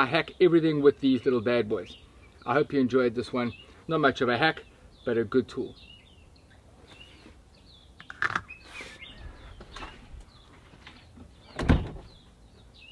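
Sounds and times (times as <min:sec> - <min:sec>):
small birds chirping: 0:00.0 - 0:12.9
loud thump: 0:11.6 - 0:12.1.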